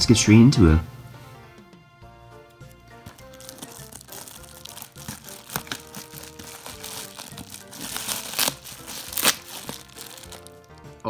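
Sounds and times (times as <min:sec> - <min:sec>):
background music: 0:00.0 - 0:11.0
plastic mailer crinkling: 0:03.0 - 0:11.0.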